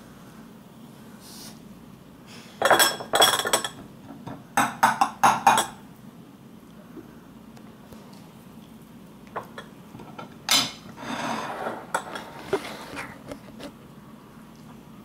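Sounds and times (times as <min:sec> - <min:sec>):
cutlery clatter: 0:02.6 - 0:03.8, 0:09.4 - 0:10.8
cutlery clinking on plate and bowl: 0:02.6 - 0:03.8, 0:09.4 - 0:12.6.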